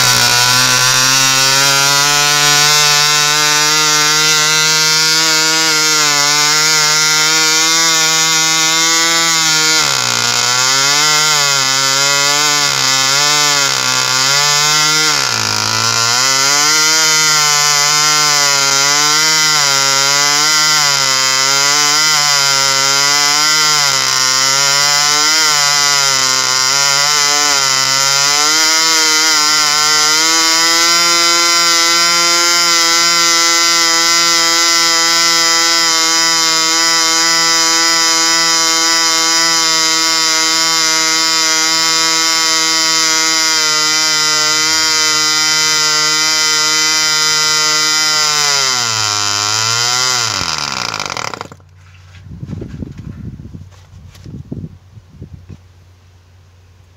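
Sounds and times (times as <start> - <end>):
model aircraft engine buzzing: 0.0 - 20.9.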